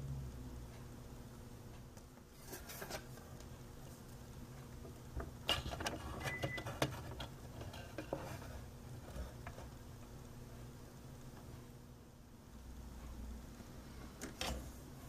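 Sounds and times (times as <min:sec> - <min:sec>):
low steady hum: 0:00.0 - 0:15.0
plastic parts clicking and scraping: 0:05.5 - 0:09.7.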